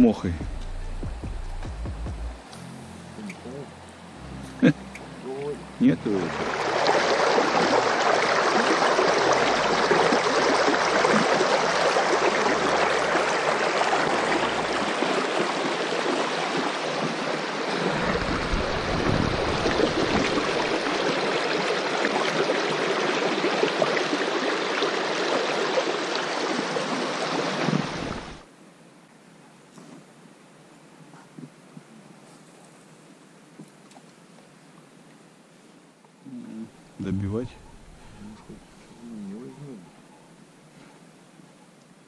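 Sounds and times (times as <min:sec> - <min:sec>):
brief low rumble: 0:00.4 - 0:05.6
water rushing over rocks: 0:05.8 - 0:28.5.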